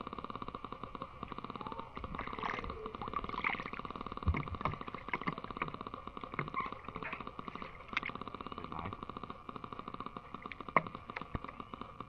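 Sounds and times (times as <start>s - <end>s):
pulsing animal chorus: 0.9s - 12.0s
water sloshing and splashing: 1.9s - 5.7s.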